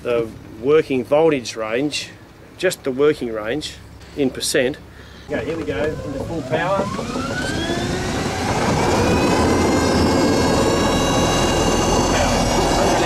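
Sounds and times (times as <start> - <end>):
electric motor whine: 5.3 - 13.0
rush of boat wake: 5.3 - 13.0.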